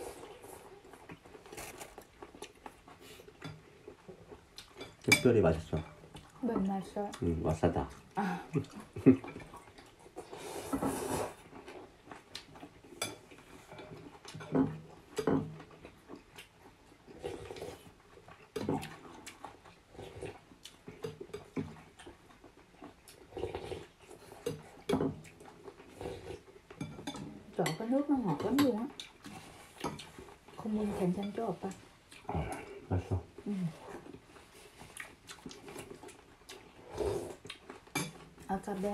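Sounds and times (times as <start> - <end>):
chewing: 0.0 - 38.9
slurping noodles: 10.2 - 11.4, 36.7 - 37.4.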